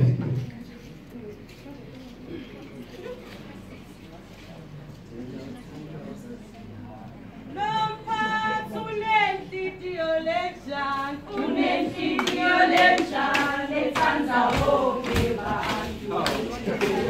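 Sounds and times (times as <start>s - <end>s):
women singing: 7.5s - 17.0s
sharp rhythmic percussive beats: 11.4s - 17.0s.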